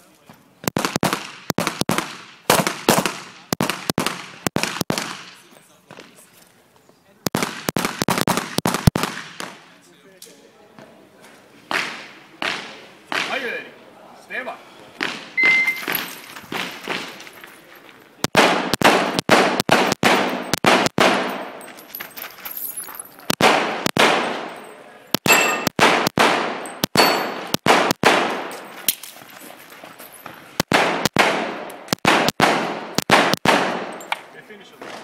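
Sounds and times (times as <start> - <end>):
pistol shots with echo: 0.6 - 5.4, 7.3 - 9.7, 18.2 - 21.6, 23.3 - 24.6, 25.2 - 28.6, 30.6 - 34.0.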